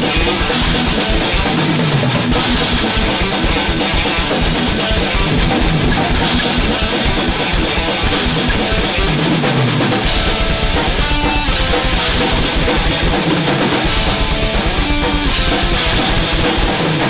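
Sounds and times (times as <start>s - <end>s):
distorted electric guitar riff: 0.0s - 17.0s
fast bass drum beat: 0.0s - 17.0s.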